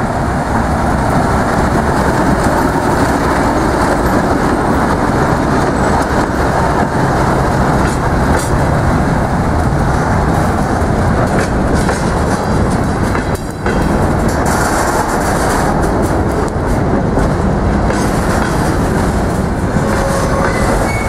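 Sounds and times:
diesel locomotive engine rumbling: 0:00.0 - 0:21.0
freight wagons rolling on rails: 0:00.0 - 0:21.0.

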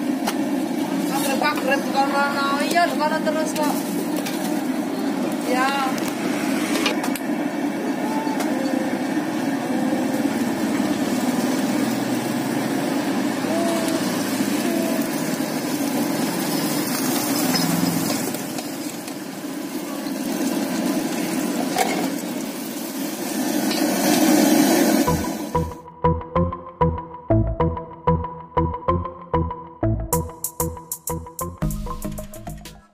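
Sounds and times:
gas burner roaring: 0:00.0 - 0:25.8
faint voices: 0:07.9 - 0:10.4, 0:13.4 - 0:15.5
electronic music: 0:25.1 - 0:32.9.

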